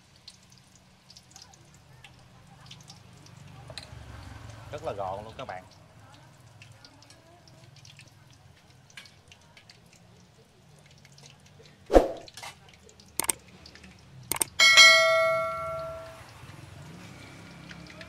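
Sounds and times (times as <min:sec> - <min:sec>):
eggs frying in oil: 0:00.0 - 0:14.6, 0:16.0 - 0:18.0
sharp ringing clang: 0:14.4 - 0:16.3
utensils knocking on a metal bowl: 0:14.4 - 0:16.3.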